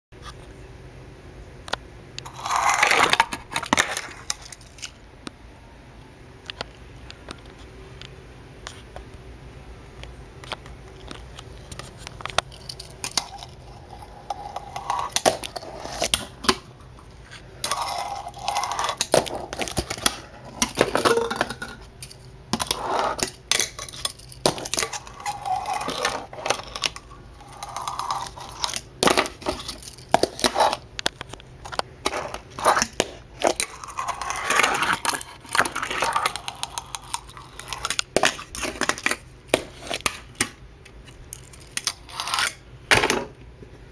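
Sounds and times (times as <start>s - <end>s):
small wheels rolling and scraping: 2.2s - 5.0s, 11.0s - 40.5s.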